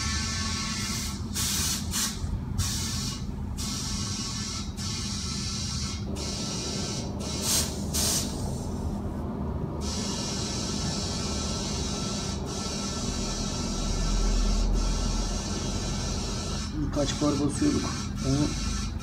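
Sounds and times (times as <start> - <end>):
compressed air hissing into tyre: 0.0 - 9.0, 9.8 - 13.5
steady low hum: 0.0 - 19.0.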